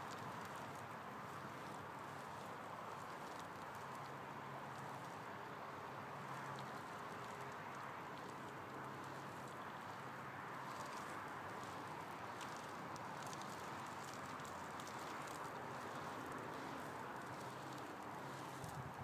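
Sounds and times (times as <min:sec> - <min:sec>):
outdoor background hiss: 0:00.0 - 0:19.0
faint light ticks: 0:06.2 - 0:18.8.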